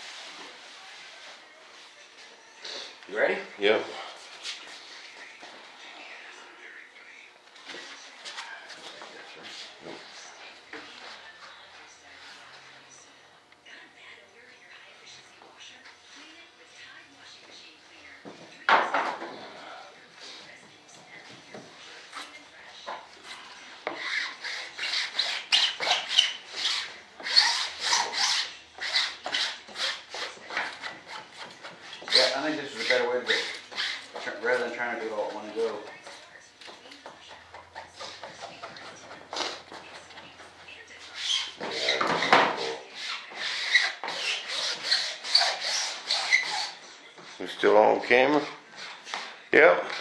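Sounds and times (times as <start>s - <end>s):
squeegee scraping back and forth: 7.6s - 13.1s, 19.2s - 50.0s
gloved hands rubbing fabric: 42.6s - 50.0s.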